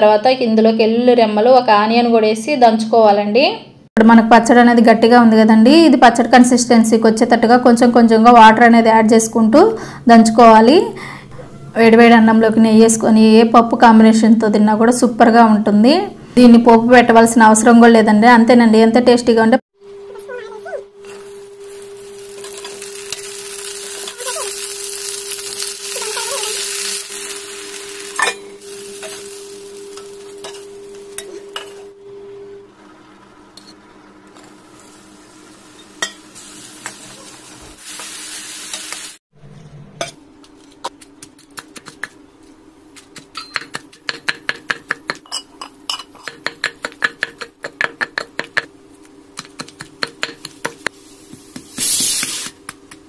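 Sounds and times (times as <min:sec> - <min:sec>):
vegetables sizzling in oil: 0:20.9 - 0:32.0, 0:32.8 - 0:39.2, 0:49.5 - 0:52.7
stone pestle pounding in mortar: 0:43.0 - 0:45.3, 0:46.2 - 0:48.7, 0:49.4 - 0:53.0.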